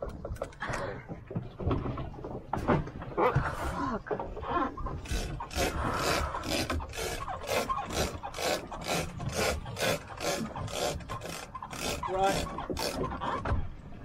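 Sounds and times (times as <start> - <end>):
fishing line rasping: 5.0 - 13.2.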